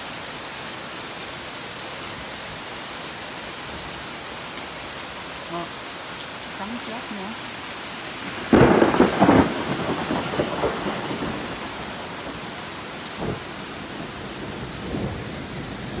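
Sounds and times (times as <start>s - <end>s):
heavy rain hissing: 0.0s - 16.0s
thunder cracking and rumbling: 8.2s - 16.0s.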